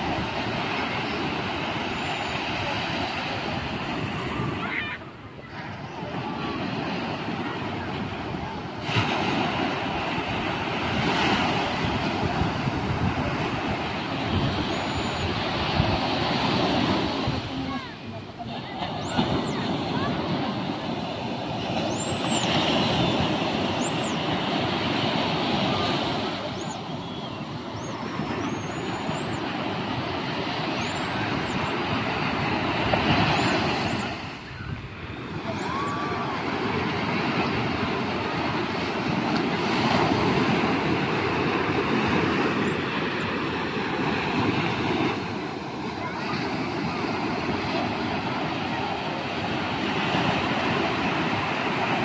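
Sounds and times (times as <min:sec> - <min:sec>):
surf washing up beach: 0:00.0 - 0:52.0.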